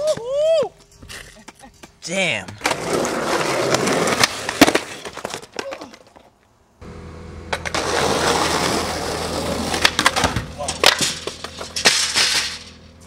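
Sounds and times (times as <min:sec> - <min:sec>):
skateboard wheels rolling on pavement: 0:01.8 - 0:13.0
steady low hum: 0:06.8 - 0:13.0
skateboard clacking on ground and rail: 0:09.5 - 0:12.4.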